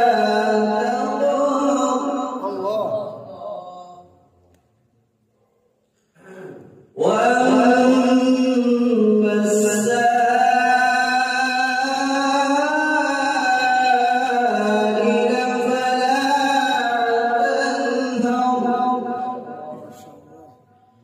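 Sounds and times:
man reciting melodically: 0.0s - 4.3s, 6.9s - 20.7s.

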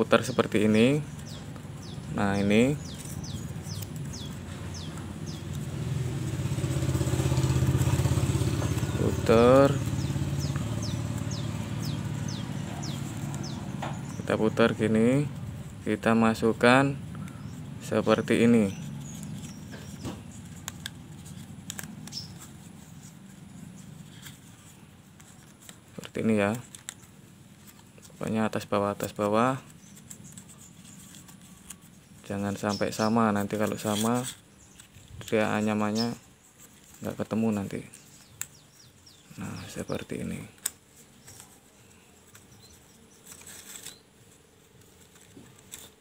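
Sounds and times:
bird chirping: 0.0s - 25.5s, 27.6s - 46.0s
leaf strips rustling and crackling: 0.2s - 16.4s, 18.2s - 46.0s
motorcycle engine running: 2.8s - 15.8s.

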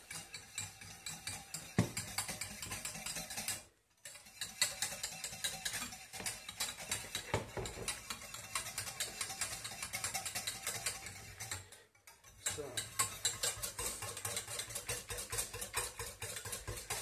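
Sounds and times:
whisk clicking in metal saucepan: 0.0s - 17.0s
knock on saucepan: 1.8s - 2.1s, 7.3s - 7.9s.

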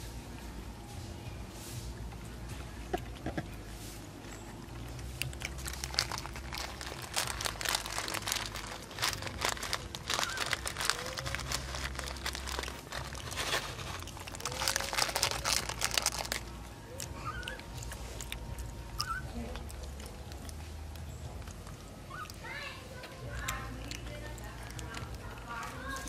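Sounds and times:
crackling and crunching: 2.1s - 26.0s.

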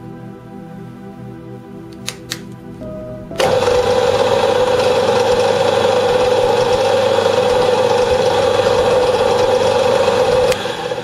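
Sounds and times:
metal lathe whirring: 3.4s - 11.0s.

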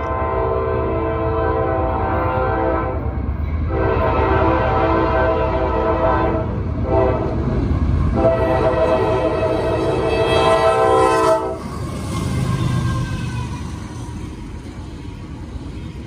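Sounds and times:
locomotive air horn blasts: 0.0s - 3.1s, 3.7s - 7.4s, 8.2s - 11.7s
locomotive engine rumbling: 0.0s - 16.0s.

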